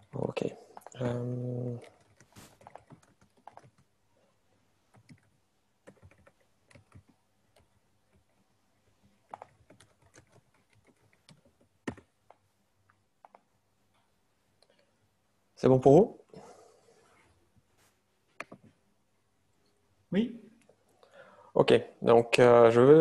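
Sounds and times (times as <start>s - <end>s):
computer keyboard typing: 0.1s - 4.0s, 4.9s - 8.4s, 9.2s - 12.4s, 13.2s - 13.5s.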